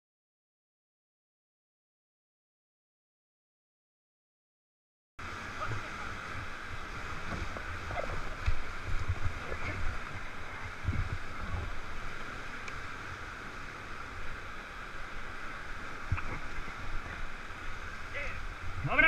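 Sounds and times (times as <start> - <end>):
whitewater rapids rushing: 5.2 - 19.0.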